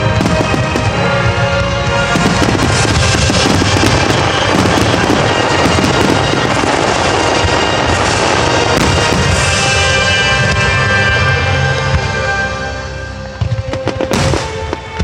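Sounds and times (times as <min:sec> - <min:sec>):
music with sustained tones: 0:00.0 - 0:15.0
rapid crackling pops: 0:02.0 - 0:09.4
firework shells bursting: 0:02.1 - 0:09.8.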